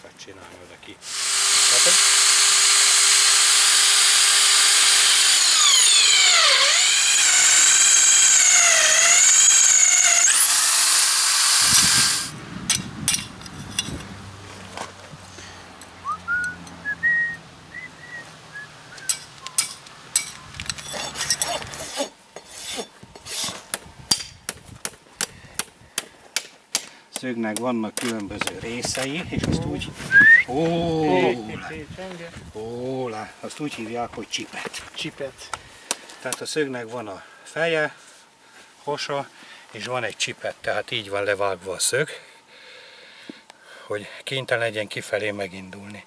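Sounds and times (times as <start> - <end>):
drill press grinding through metal: 1.0 - 12.3.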